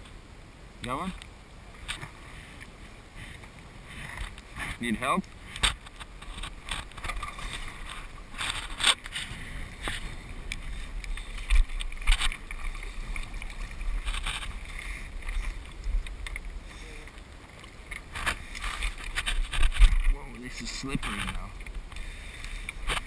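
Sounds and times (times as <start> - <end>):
footsteps on loose rocks: 5.6 - 16.3, 18.0 - 22.0.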